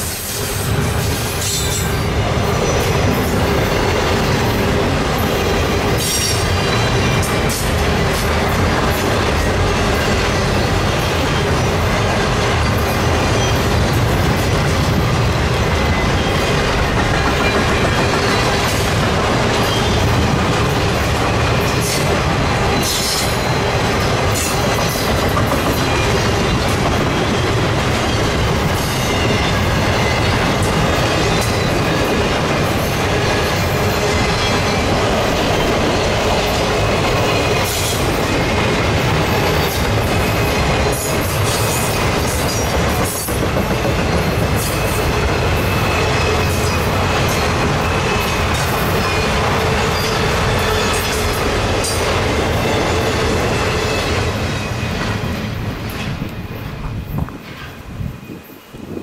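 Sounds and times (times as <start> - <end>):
freight train wheels rumbling on rails: 0.0 - 59.0.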